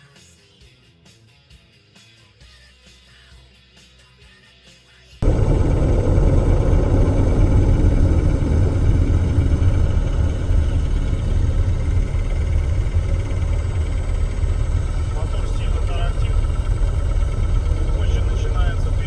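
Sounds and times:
car interior road noise: 5.2 - 19.0.

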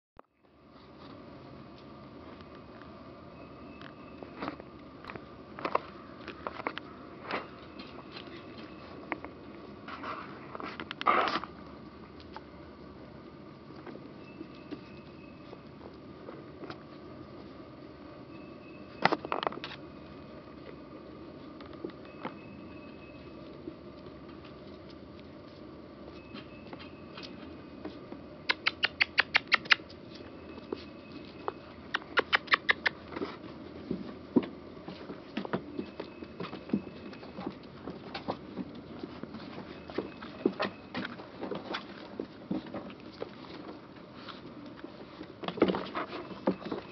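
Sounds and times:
puppies scuffling: 0.7 - 12.4, 13.5 - 46.9
puppies' paws tapping on bricks: 26.2 - 46.9
high-pitched puppy squeaks: 28.5 - 29.9, 31.9 - 33.0.

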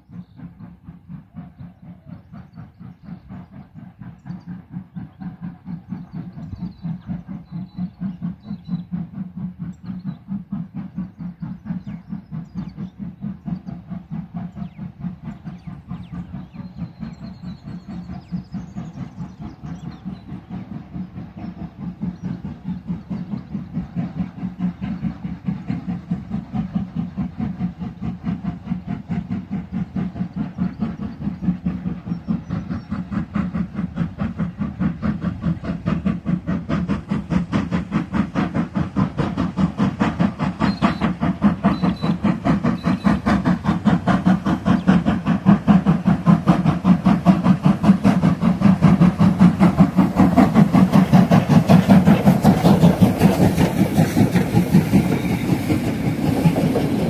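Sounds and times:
steam locomotive chuffing: 0.0 - 57.0.

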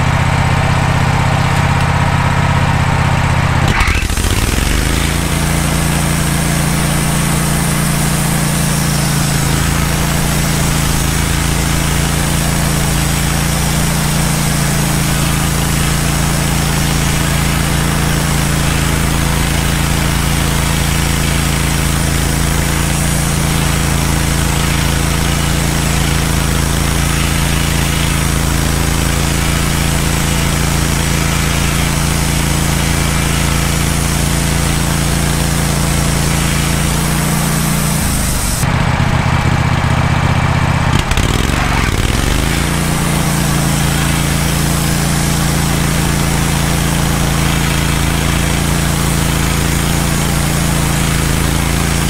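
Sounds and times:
sawmill engine running: 0.0 - 52.0
band blade sawing through log: 3.6 - 38.7, 40.9 - 52.0.

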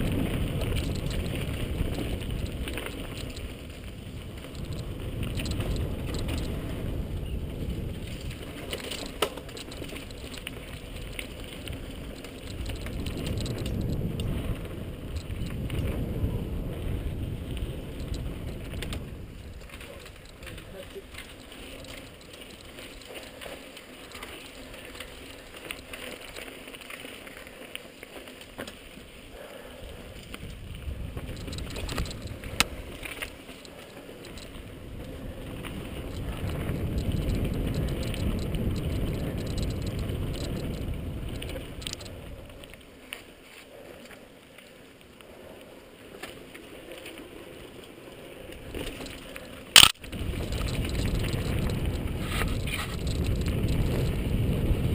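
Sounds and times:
wind on microphone: 0.0 - 22.8, 29.3 - 33.3, 34.0 - 42.7, 49.8 - 54.9
bike tyres on dirt trail: 0.0 - 54.9
small rattles and clicks: 0.0 - 54.9
sharp loud click: 49.8 - 50.0.

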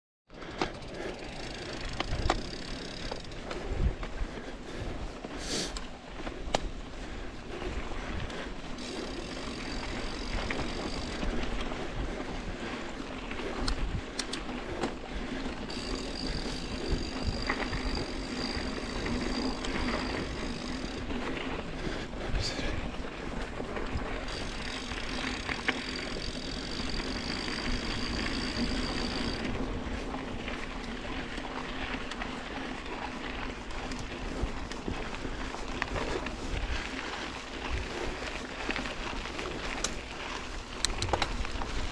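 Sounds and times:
bike clicks and rattles: 0.3 - 41.9
bike tyre and wind noise: 0.3 - 41.9.

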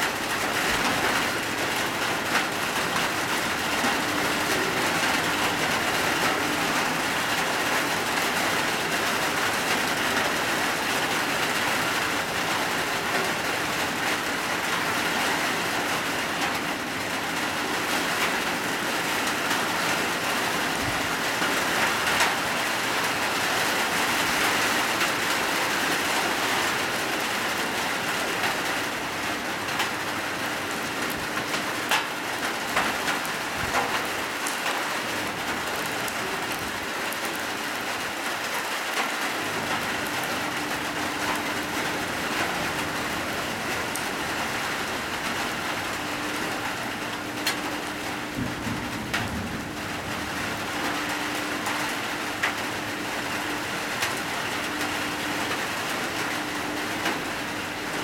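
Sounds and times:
hard rain falling: 0.0 - 58.0
raindrop clicks: 31.1 - 36.7, 39.7 - 41.8.

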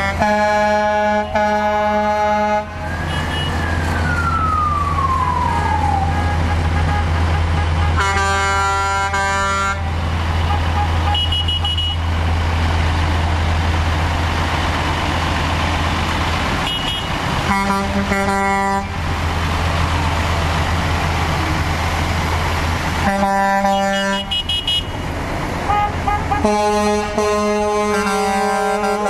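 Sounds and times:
truck air horn blasts: 0.0 - 3.7, 6.1 - 12.1, 16.6 - 19.0, 23.0 - 25.1, 25.7 - 29.0
trucks rolling past: 0.0 - 29.0.

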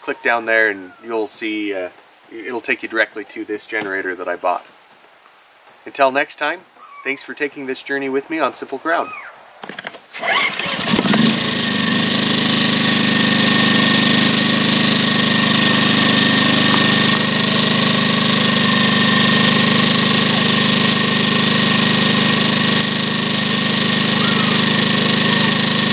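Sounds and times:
generator engine running: 10.2 - 25.9.

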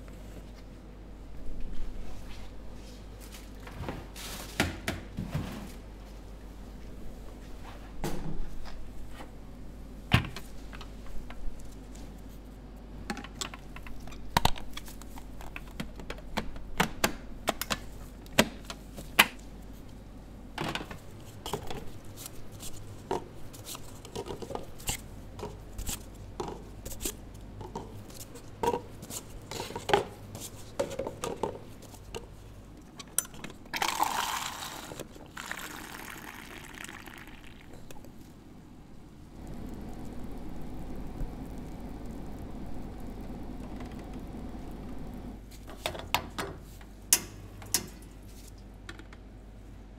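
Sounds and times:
coffee pouring into paper cup: 33.8 - 38.2.

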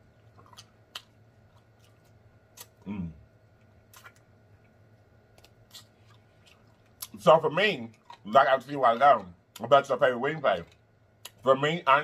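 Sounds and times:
wet lip smacks and mouth clicks: 0.2 - 2.8, 3.6 - 7.2
person humming mm: 2.8 - 3.2.

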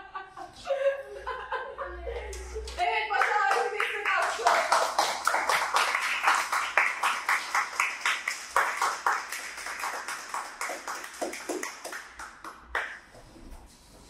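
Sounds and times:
children clapping: 2.3 - 13.1.

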